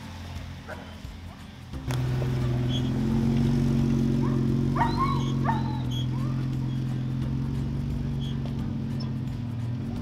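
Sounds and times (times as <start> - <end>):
car engine running low: 0.0 - 10.0
dog yelping: 4.2 - 6.5.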